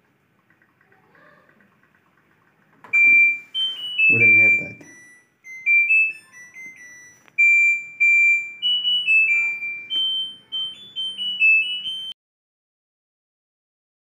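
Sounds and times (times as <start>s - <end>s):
washing machine beeping melody: 1.8s - 12.2s.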